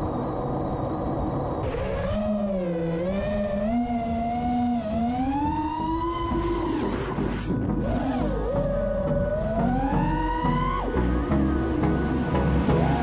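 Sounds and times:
quadcopter motors whining: 0:01.6 - 0:13.0.

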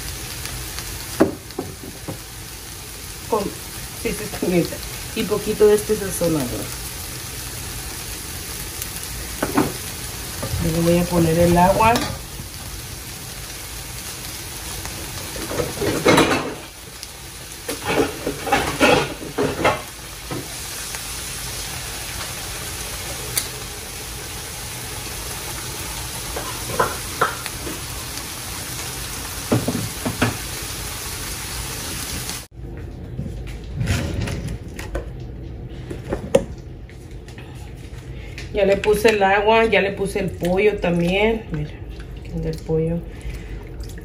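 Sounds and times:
vegetables sizzling in a pan: 0:00.0 - 0:32.5.

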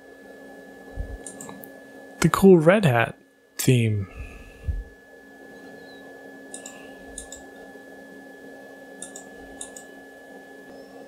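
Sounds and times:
faint background hum: 0:00.0 - 0:11.0
mouse button clicks: 0:09.0 - 0:09.9.

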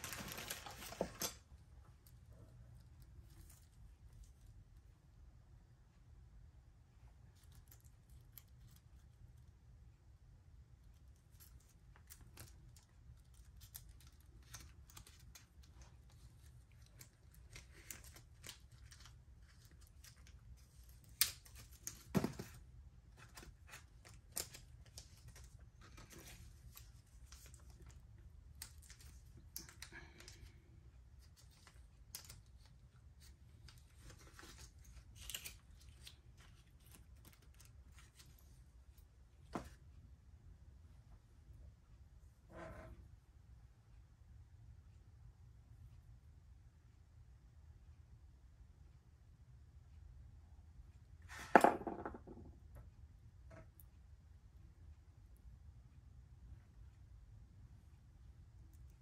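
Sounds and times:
plastic bags rustling: 0:00.0 - 0:01.4.

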